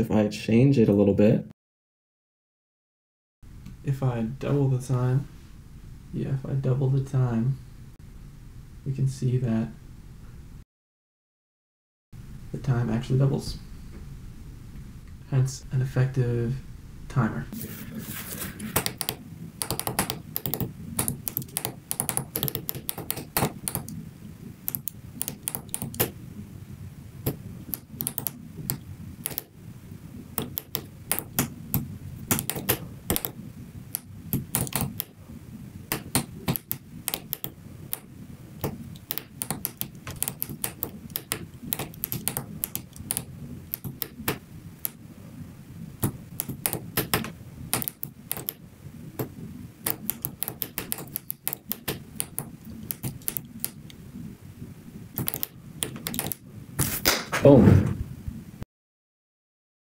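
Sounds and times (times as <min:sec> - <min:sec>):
push buttons clicking: 0:18.6 - 0:24.0, 0:24.7 - 0:26.1, 0:27.3 - 0:29.5, 0:30.4 - 0:31.5, 0:32.3 - 0:33.4, 0:35.9 - 0:45.0, 0:46.4 - 0:48.6, 0:49.9 - 0:53.8, 0:55.2 - 0:56.4.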